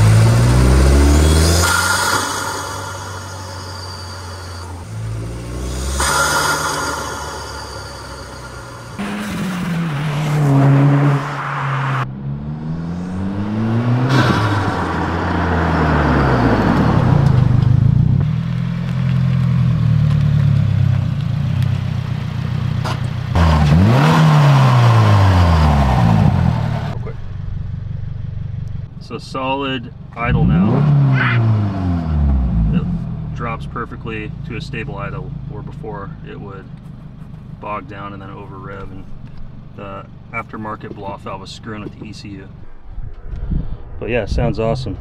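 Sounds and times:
car driving past: 0.0 - 18.2
car engine revving and accelerating: 0.0 - 21.8, 22.8 - 27.0, 30.2 - 35.6
turbo whistle and hiss: 1.5 - 9.0.

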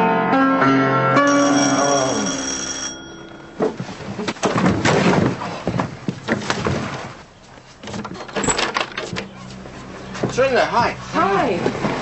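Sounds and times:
piano chord: 0.0 - 3.6
door lock and latch rattling: 8.0 - 9.3.

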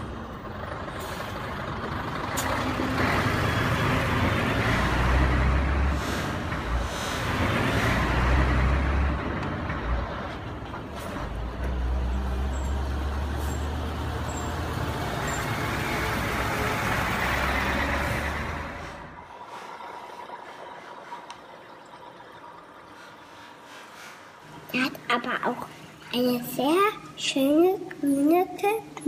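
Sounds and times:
heavy vehicle engine hum: 0.0 - 19.4.

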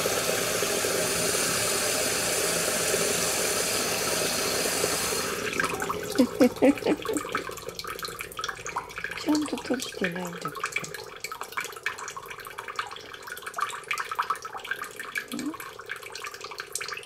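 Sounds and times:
tap running in steady stream: 0.0 - 17.0
gurgling drips from tap: 3.5 - 17.0.

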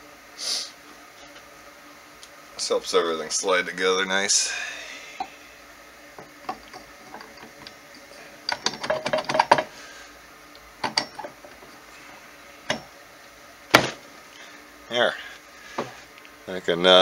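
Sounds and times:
metal clinks and knocks: 6.5 - 9.7, 10.8 - 11.4.

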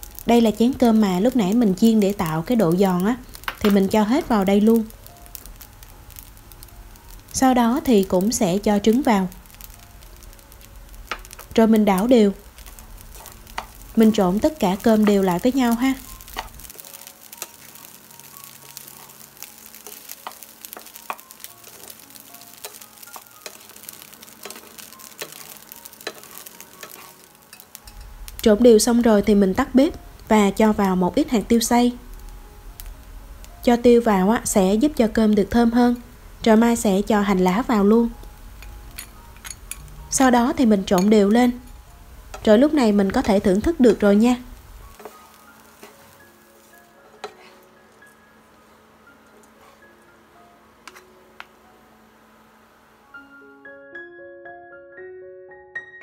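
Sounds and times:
rice sizzling in hot oil: 0.0 - 50.0
soft background music: 0.0 - 56.0
wooden spatulas stirring rice: 12.3 - 28.0, 44.9 - 48.2
spatula scraping a pan: 22.6 - 27.3, 45.0 - 47.8.

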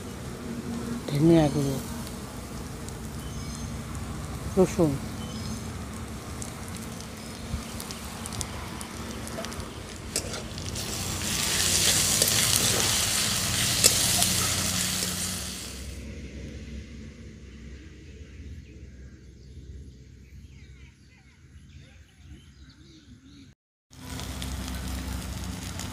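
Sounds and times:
spices sizzling in hot oil: 0.0 - 16.0, 23.9 - 25.9
spatula stirring in metal pan: 9.0 - 15.8.

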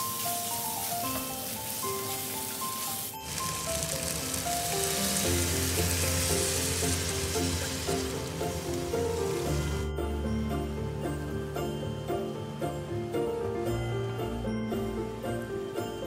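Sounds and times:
chicken sizzling in hot oil: 0.0 - 9.9
water poured into hot pan: 0.0 - 9.9.

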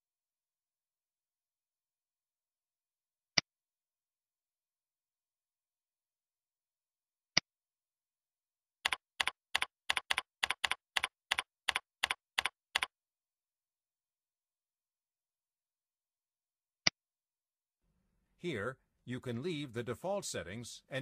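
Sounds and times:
computer keyboard typing: 8.8 - 12.9.

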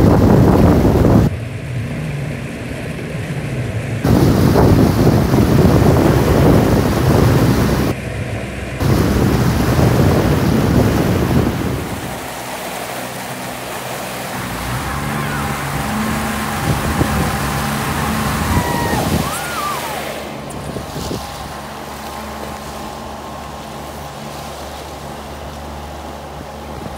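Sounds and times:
wind buffeting microphone: 0.0 - 1.4, 3.7 - 24.3
rushing splashing water: 0.0 - 26.9.

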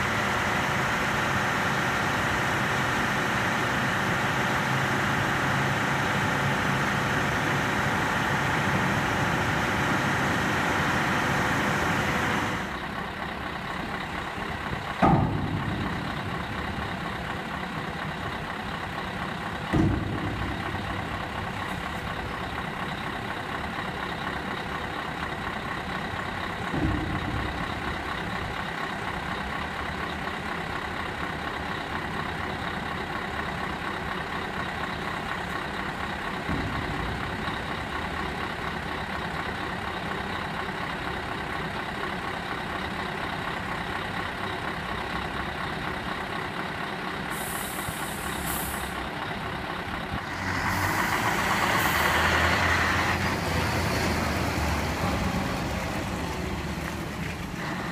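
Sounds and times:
diesel engine running: 0.0 - 57.9
dull knocks of trailer body: 14.9 - 17.7, 19.5 - 22.2
air hiss: 47.3 - 49.0.

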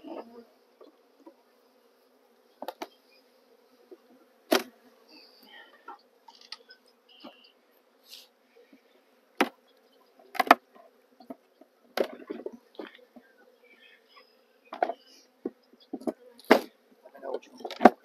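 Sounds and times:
bees buzzing: 0.0 - 18.0
wooden hive boxes knocking: 2.6 - 2.9, 10.3 - 13.3.

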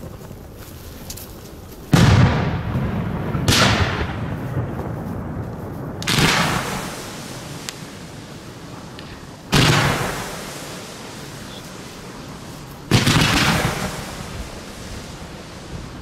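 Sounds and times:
fireworks booming: 1.9 - 16.0
rumbling echo: 2.0 - 11.3.

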